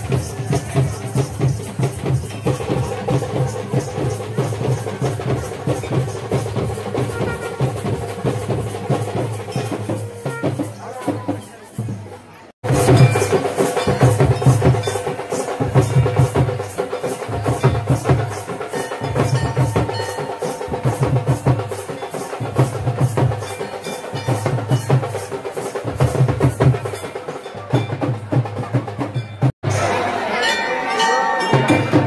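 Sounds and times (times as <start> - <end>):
deep drum pattern: 0.0 - 30.3
folk drums and cymbals: 0.0 - 32.0.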